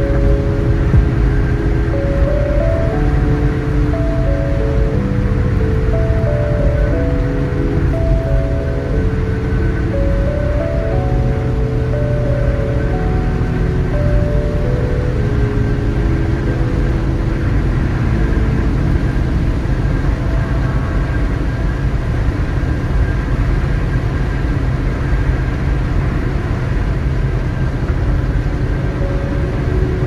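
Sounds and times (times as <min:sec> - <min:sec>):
tyres and engine droning: 0:00.0 - 0:30.0.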